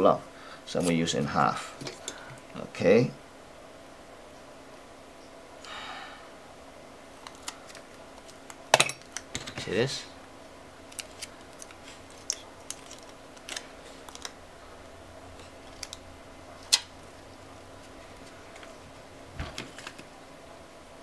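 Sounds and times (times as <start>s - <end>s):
faint steady hum: 0.0s - 21.0s
foil tape crinkling: 10.9s - 14.4s
handling noises: 17.8s - 20.2s.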